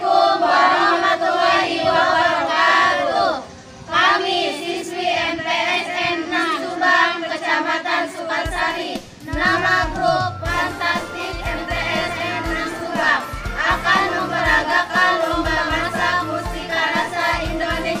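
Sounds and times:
women and girls singing in unison: 0.0 - 18.0
steady bass beat: 8.5 - 18.0.

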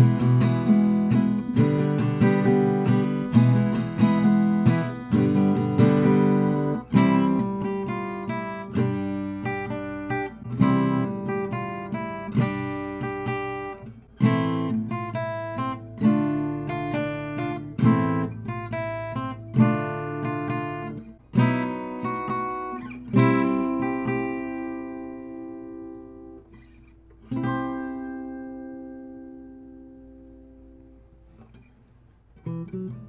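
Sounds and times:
acoustic guitar slow tune: 0.0 - 33.0.

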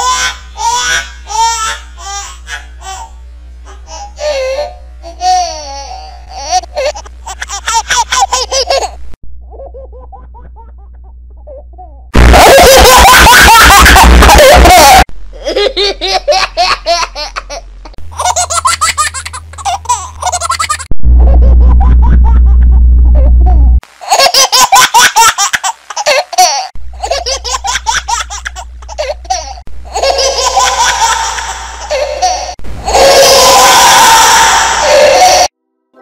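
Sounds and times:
baby laughing with audio effects: 0.0 - 3.1, 3.7 - 35.5
steady low hum: 15.2 - 23.8, 26.8 - 35.5.

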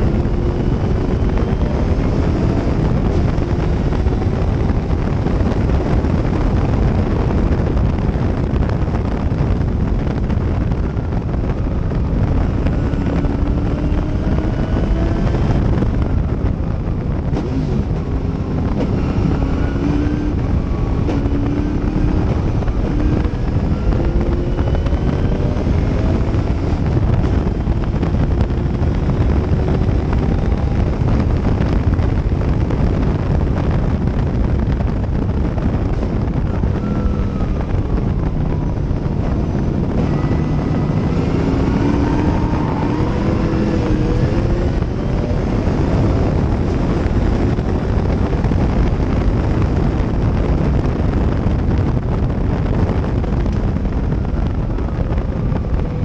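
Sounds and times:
race car engine: 0.0 - 56.0
wind buffeting on microphone: 0.0 - 56.0.

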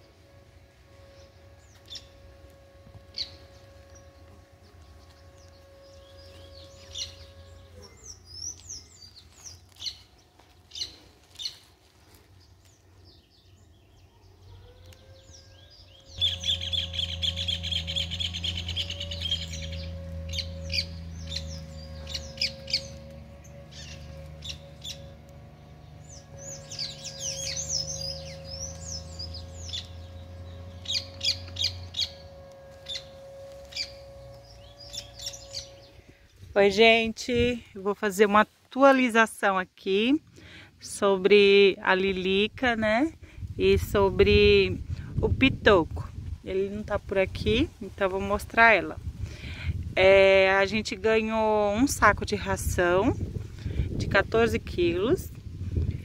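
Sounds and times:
wild birds chirping and singing: 0.0 - 36.4
steady low hum: 0.0 - 56.0
bird rapid trill: 3.1 - 11.6, 15.2 - 36.0.

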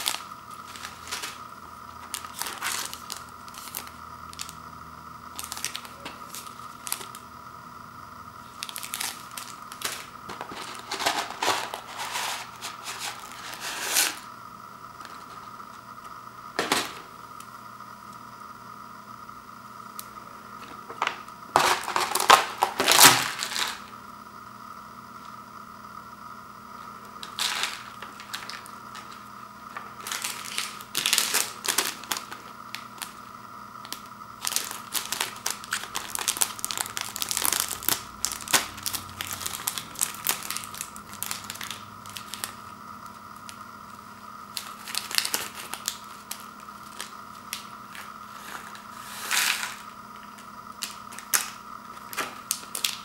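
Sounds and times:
plastic packets crinkling: 0.0 - 4.6, 5.3 - 7.3, 8.4 - 14.3, 27.2 - 33.2, 33.8 - 42.7, 44.5 - 53.0.

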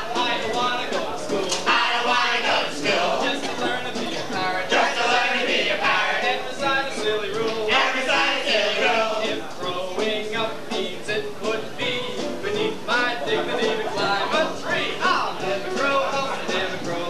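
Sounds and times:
backing music: 0.0 - 17.0
other voices singing: 0.0 - 17.0
person singing: 0.0 - 17.0.

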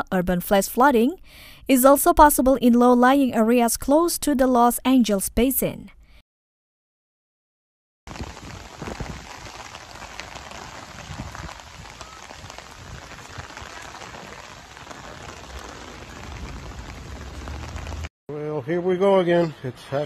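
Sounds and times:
heavy rain on water: 8.1 - 18.1
low rumble: 10.1 - 18.1.

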